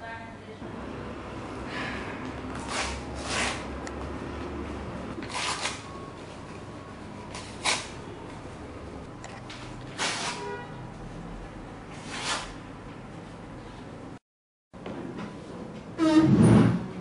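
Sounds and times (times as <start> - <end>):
paper envelope tearing: 2.6 - 3.7, 5.2 - 5.8, 7.4 - 8.0, 9.9 - 10.4.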